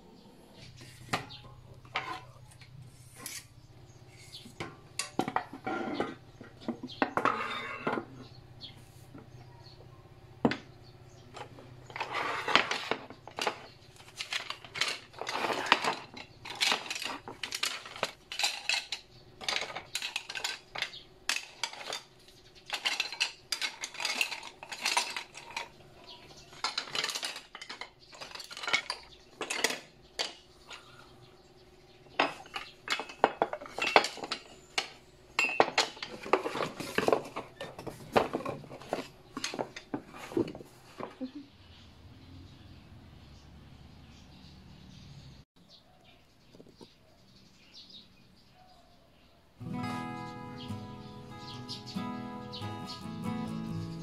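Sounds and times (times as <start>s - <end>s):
kitchen utensils knocking and clinking: 0.8s - 3.4s, 4.4s - 8.3s, 11.3s - 30.8s, 32.1s - 41.3s.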